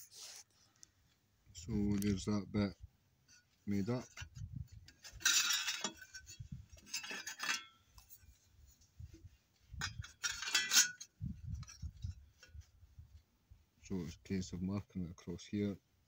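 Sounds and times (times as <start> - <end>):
steel panels clinking and scraping: 3.3 - 8.4, 9.7 - 12.7.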